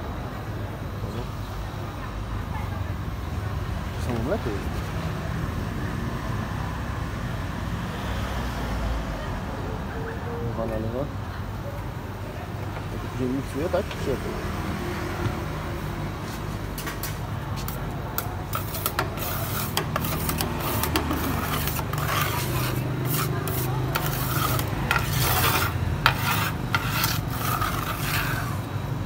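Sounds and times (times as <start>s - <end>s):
metal spatula scraping metal plate: 18.2s - 28.7s.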